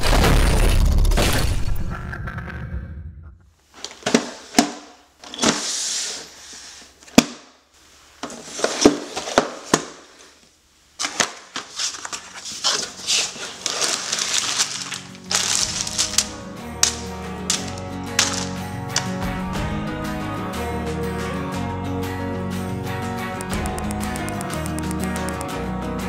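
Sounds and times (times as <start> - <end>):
box scraping on table: 5.2 - 6.9, 8.3 - 9.4
plastic bags crinkling: 11.0 - 19.2.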